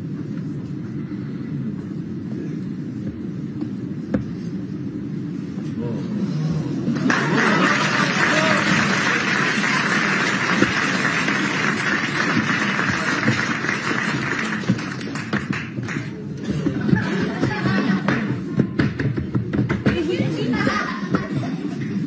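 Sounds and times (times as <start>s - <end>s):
audience cheering and clapping: 7.0s - 16.2s.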